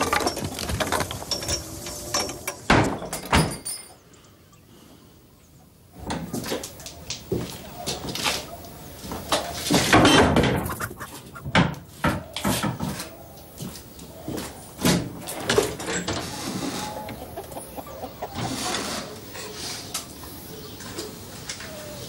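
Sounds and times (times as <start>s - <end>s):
chickens clucking and squawking: 7.0s - 22.0s.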